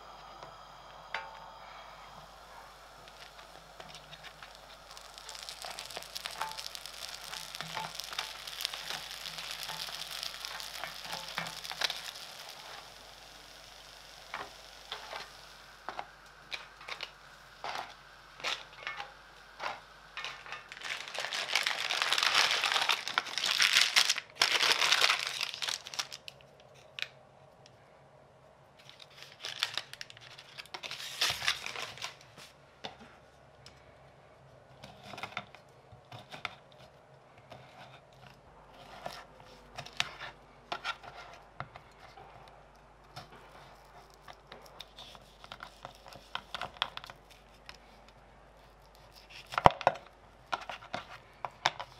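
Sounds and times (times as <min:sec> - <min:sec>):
bread sizzling in grill pan: 0:00.0 - 0:26.2
paper wrapping crinkling: 0:02.3 - 0:27.2, 0:28.8 - 0:32.6.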